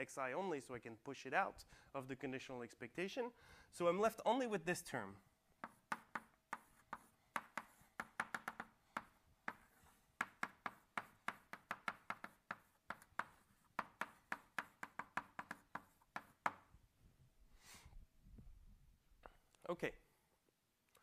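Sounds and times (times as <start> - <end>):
chalk tapping on blackboard: 5.6 - 16.7.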